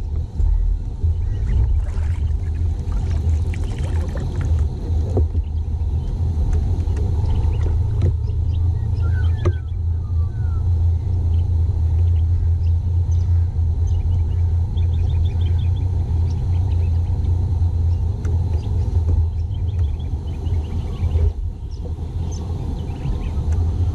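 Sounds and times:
loud low rumble: 0.0 - 23.9
faint bird chirps: 7.2 - 23.6.

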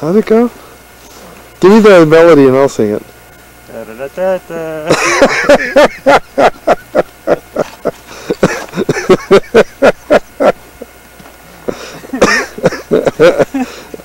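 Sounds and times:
man's voice in rapid bursts: 1.6 - 3.1, 3.7 - 5.0.

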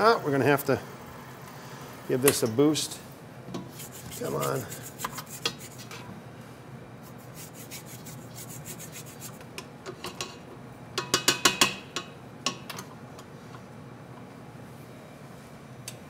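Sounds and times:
spatula scraping metal bowl: 3.7 - 6.0.

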